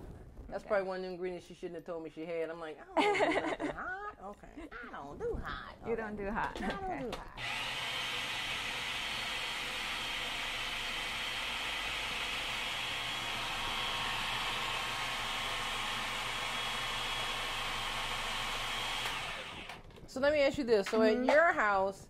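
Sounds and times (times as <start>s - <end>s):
food processor motor whining: 7.4s - 20.0s.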